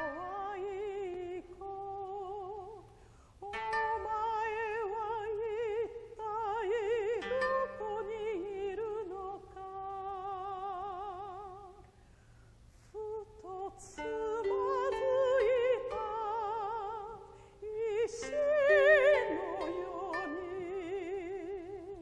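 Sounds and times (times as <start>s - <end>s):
koto-led ensemble: 0.0s - 2.7s, 3.5s - 10.8s, 13.8s - 22.0s
woman singing with vibrato: 0.0s - 11.9s, 12.9s - 22.0s.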